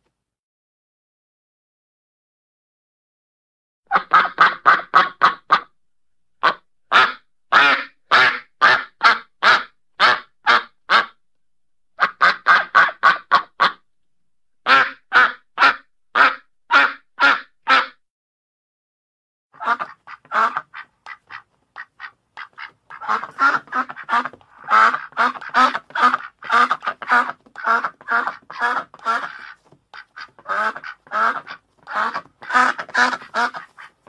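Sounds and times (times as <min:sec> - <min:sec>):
duck quacking: 0:03.9 - 0:05.7, 0:06.4 - 0:11.2, 0:12.0 - 0:13.8, 0:14.6 - 0:18.0, 0:19.6 - 0:34.0.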